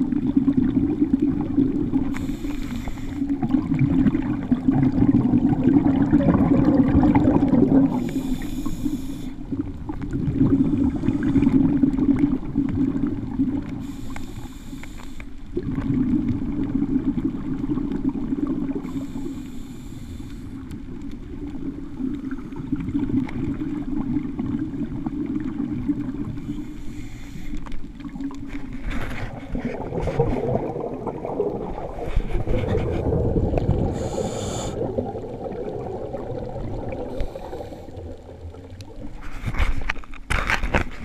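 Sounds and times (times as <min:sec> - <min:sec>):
gurgling exhaled bubbles: 0:00.0 - 0:14.6, 0:15.5 - 0:19.5, 0:20.5 - 0:39.9
regulator hissing inhale: 0:02.1 - 0:03.4, 0:07.9 - 0:09.4, 0:13.8 - 0:15.4, 0:18.8 - 0:20.7, 0:26.4 - 0:27.8, 0:33.9 - 0:35.0, 0:37.0 - 0:38.2.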